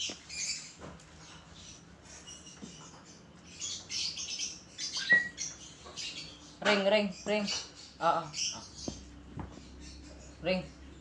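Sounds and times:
bird chirping: 0:00.0 - 0:11.0
bird squeak: 0:04.8 - 0:06.2.

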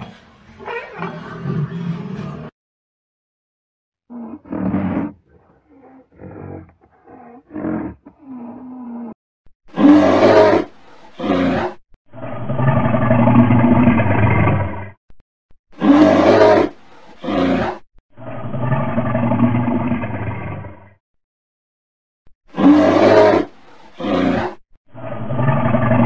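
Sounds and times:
bear grunting: 0:04.1 - 0:11.8
bear roaring: 0:04.1 - 0:14.9, 0:15.8 - 0:20.9, 0:22.5 - 0:26.0.

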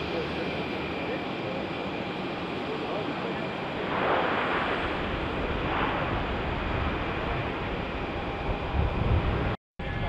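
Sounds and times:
distant turboprop roar: 0:00.0 - 0:10.0
wind on microphone: 0:03.7 - 0:10.0.

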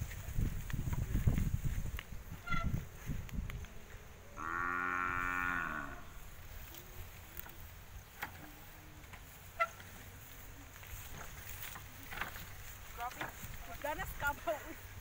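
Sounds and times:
water buffalo mooing: 0:04.4 - 0:06.2.

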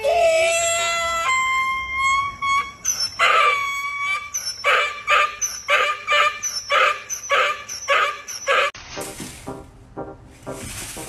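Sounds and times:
donkey braying: 0:00.0 - 0:08.8.

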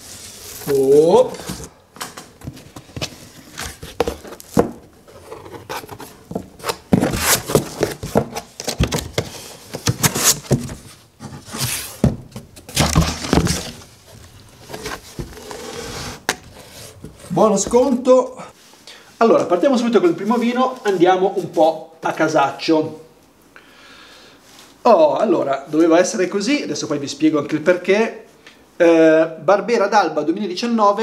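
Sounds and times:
cardboard tearing and rustling: 0:00.1 - 0:01.8, 0:02.5 - 0:17.8
scissors cutting cardboard box: 0:03.5 - 0:10.8.

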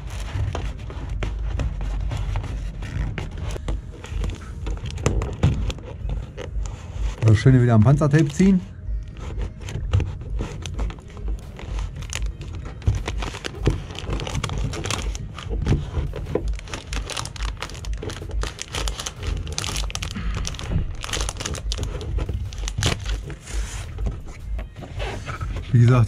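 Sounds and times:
foam and tape crinkling: 0:00.0 - 0:26.0.

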